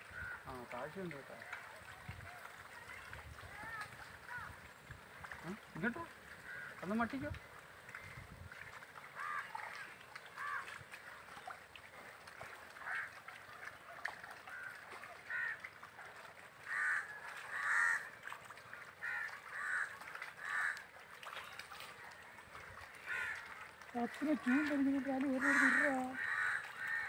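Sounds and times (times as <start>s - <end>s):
birds calling: 0.0s - 11.6s, 16.6s - 18.1s, 19.0s - 27.0s.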